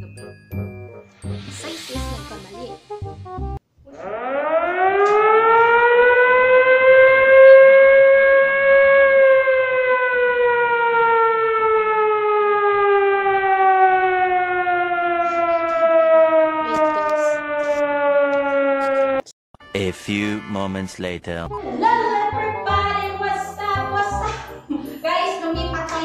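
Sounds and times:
siren wailing: 0:03.9 - 0:19.3.

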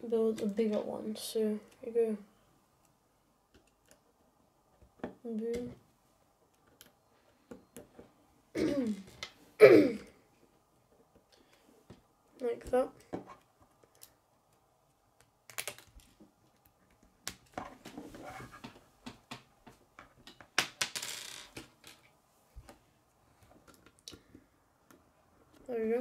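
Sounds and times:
plastic pieces clicking together: 0:15.4 - 0:17.6.

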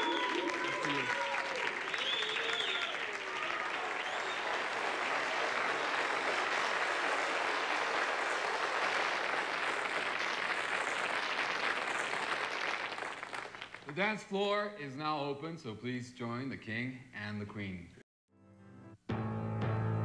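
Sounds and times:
shouts and whoops: 0:00.0 - 0:04.4
audience applauding and cheering: 0:00.0 - 0:14.0.

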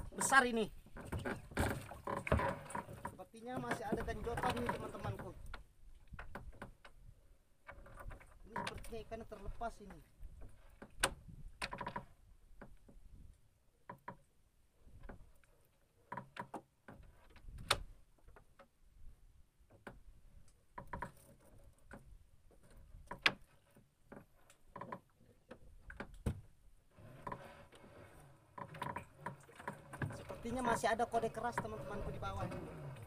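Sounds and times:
clicks and knocks of fishing line: 0:09.9 - 0:14.3, 0:14.9 - 0:18.7, 0:19.7 - 0:26.5.

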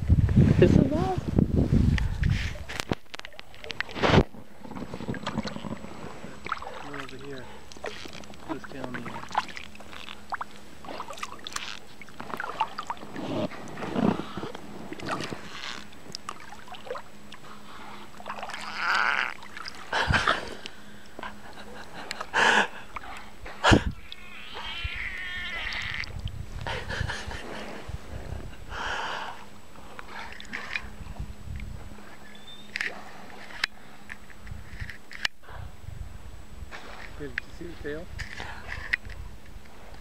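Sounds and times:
long whale call: 0:18.4 - 0:19.5, 0:23.9 - 0:26.1
whale chirps and clicks: 0:24.0 - 0:26.4, 0:32.2 - 0:33.8.

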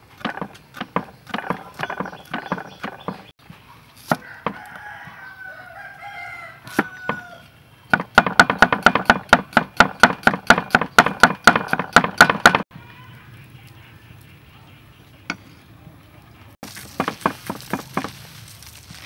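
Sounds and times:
cleaver chopping on wooden block: 0:00.2 - 0:03.3, 0:04.1 - 0:04.6, 0:07.9 - 0:12.6, 0:16.8 - 0:18.2
rooster crowing: 0:04.2 - 0:07.5.

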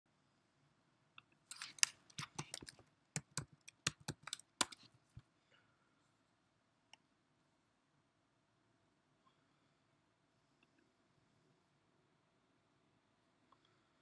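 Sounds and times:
keyboard typing: 0:01.5 - 0:04.9.

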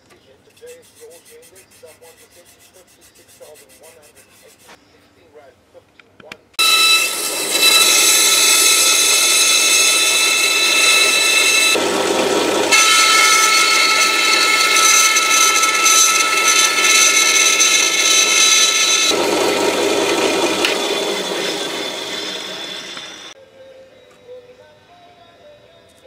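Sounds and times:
bandsaw whining: 0:06.6 - 0:23.4.

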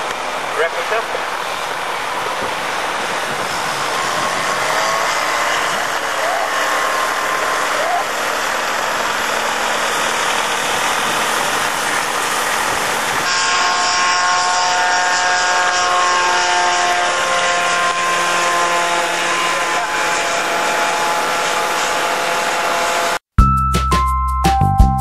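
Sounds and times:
light aircraft engine droning: 0:00.0 - 0:13.3
music: 0:23.4 - 0:25.0.

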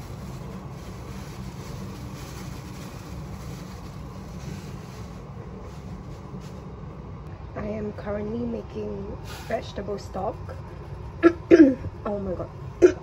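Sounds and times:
gas burner rumbling: 0:00.0 - 0:13.0.

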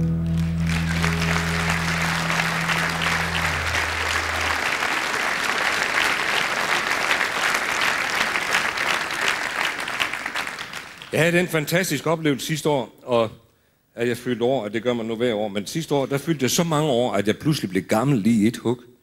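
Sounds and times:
bass and guitar chord ringing: 0:00.0 - 0:04.6
audience applauding: 0:00.0 - 0:11.4.

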